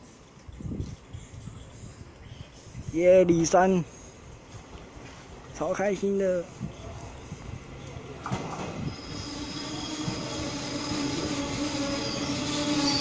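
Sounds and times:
electric train whine: 6.4s - 13.0s
wheels rumbling on rail: 6.4s - 13.0s.

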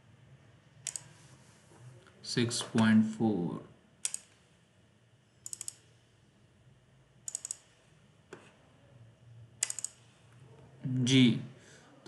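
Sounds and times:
computer mouse clicking: 0.8s - 1.1s, 4.0s - 4.4s, 5.4s - 5.9s, 7.3s - 7.7s, 9.6s - 10.1s.

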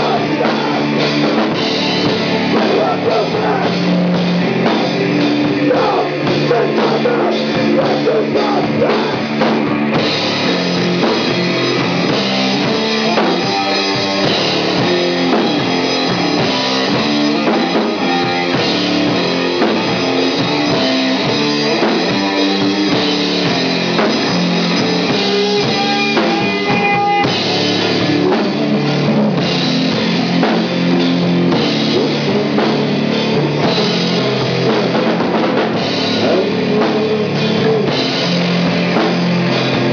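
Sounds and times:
drum kit: 0.0s - 39.9s
electric guitar: 0.0s - 39.9s.

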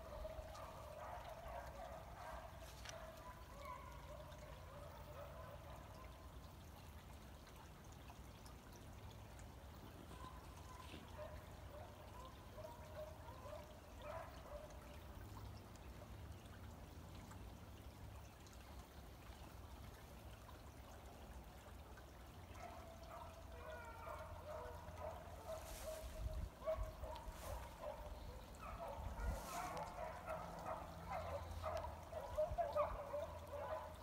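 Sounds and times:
distant beagles baying: 23.2s - 34.0s.

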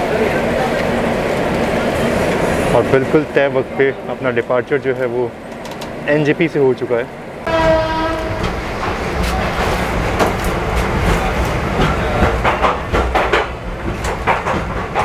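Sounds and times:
train rumbling: 0.0s - 15.0s
wheel clatter over rail joints: 0.2s - 6.4s, 7.6s - 15.0s
train horn: 7.4s - 8.6s.

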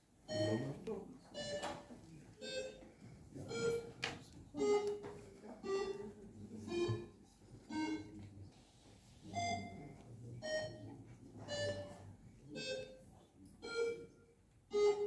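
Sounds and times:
slow tune of single notes: 12.6s - 13.0s, 13.6s - 15.0s.

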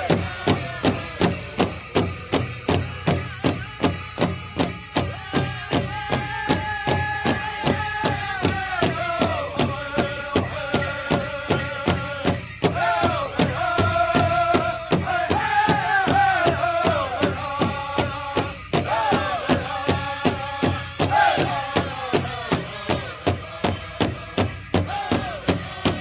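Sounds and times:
fast drum beat: 0.0s - 26.0s.

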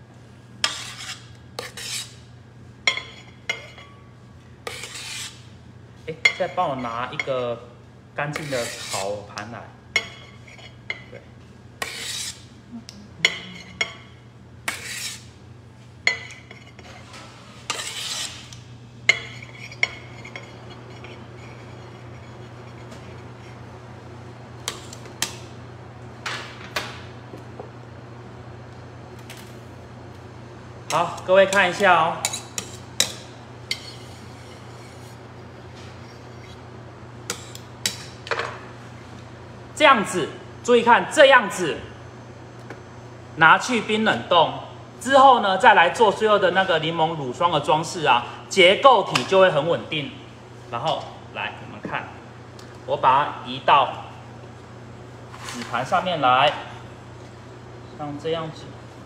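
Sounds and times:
steady low hum: 0.0s - 59.0s
spatula scraping metal: 0.6s - 2.2s, 4.6s - 5.4s, 8.3s - 9.2s, 11.8s - 12.4s, 14.7s - 15.3s, 16.1s - 23.6s, 30.9s - 36.6s.

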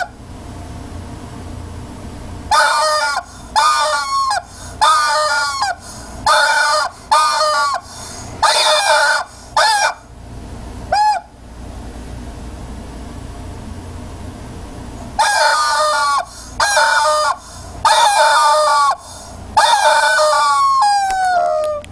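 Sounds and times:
rubber chicken toy squawking: 2.5s - 10.1s, 10.9s - 11.3s, 15.2s - 21.9s.

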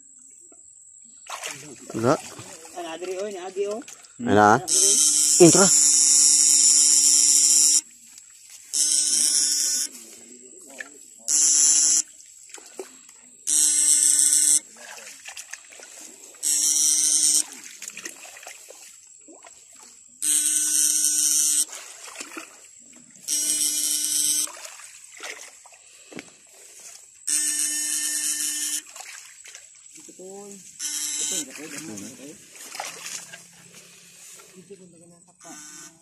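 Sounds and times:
water splashing and trickling: 1.0s - 4.6s, 10.1s - 11.3s, 12.0s - 13.5s, 14.6s - 16.4s, 17.4s - 20.2s, 21.6s - 23.2s, 24.4s - 27.2s, 28.8s - 34.8s
electric shocker buzzing: 4.4s - 7.9s, 8.7s - 10.0s, 11.3s - 12.1s, 13.5s - 14.6s, 16.4s - 17.6s, 20.2s - 21.8s, 23.2s - 24.6s, 27.2s - 28.9s, 30.8s - 32.2s, 35.4s - 36.0s.

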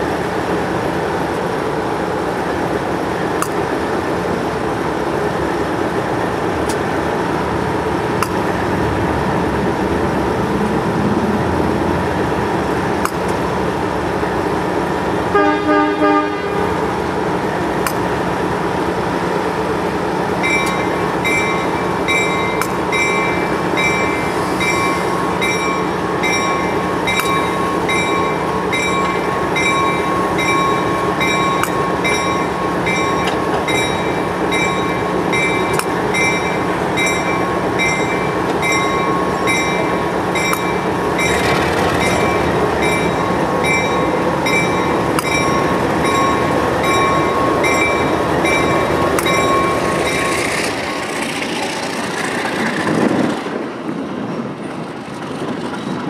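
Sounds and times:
diesel locomotive idling: 0.0s - 54.5s
bell ringing: 20.4s - 51.2s.

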